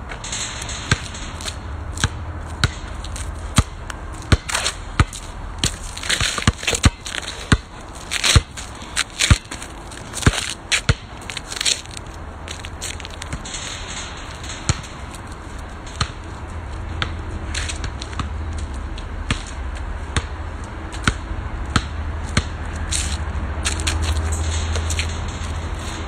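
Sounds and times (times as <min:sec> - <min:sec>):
basketball bouncing on hard court: 0:00.8 - 0:13.7, 0:14.4 - 0:18.4, 0:19.3 - 0:19.5, 0:20.1 - 0:22.6.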